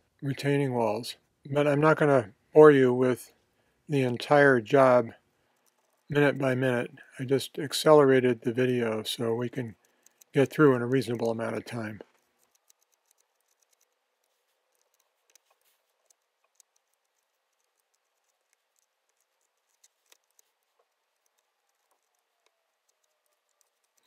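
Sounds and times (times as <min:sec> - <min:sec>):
spatula ticking and scraping: 0:05.5 - 0:06.4, 0:08.8 - 0:24.0.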